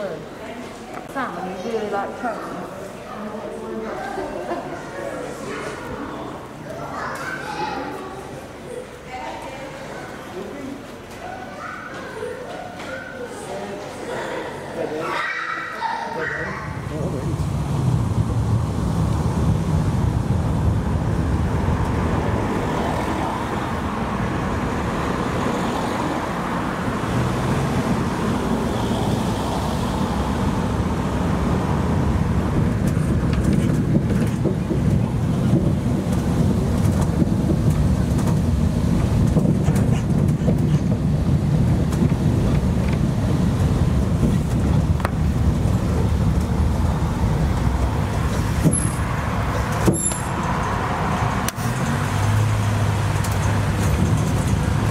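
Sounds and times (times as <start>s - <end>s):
road noise: 0.0s - 54.9s
low engine rumble: 16.5s - 54.9s.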